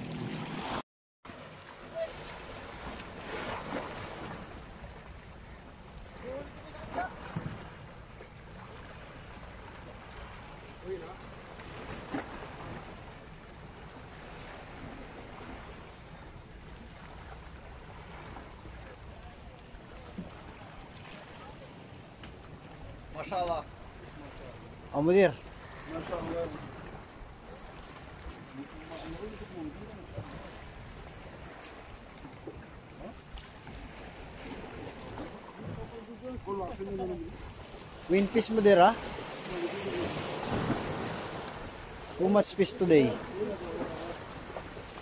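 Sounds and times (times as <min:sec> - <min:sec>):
waves washing against rocks: 0:00.0 - 0:07.9, 0:32.6 - 0:45.0
surf washing against rocks: 0:00.0 - 0:16.0, 0:16.7 - 0:45.0.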